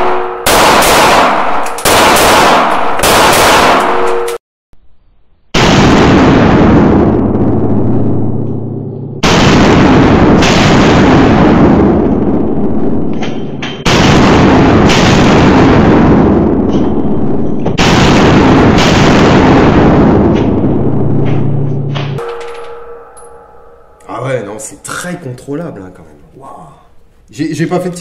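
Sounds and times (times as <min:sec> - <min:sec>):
pistol shots: 0:00.4 - 0:04.3.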